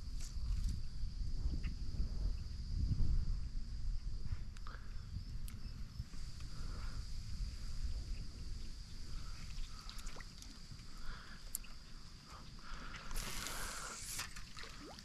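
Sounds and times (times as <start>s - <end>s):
wind rumble on microphone: 0.0s - 15.0s
water lapping against kayak hull: 12.7s - 15.0s
brief hiss: 13.1s - 14.4s.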